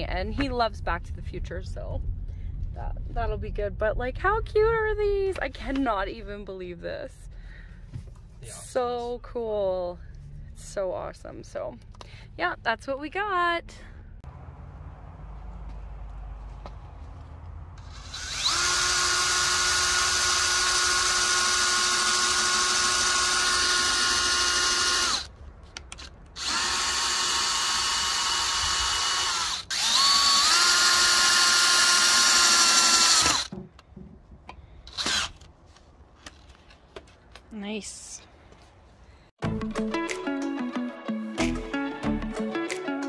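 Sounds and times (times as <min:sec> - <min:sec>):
electric drill whining: 0:17.8 - 0:25.3, 0:26.0 - 0:33.5, 0:34.9 - 0:35.5.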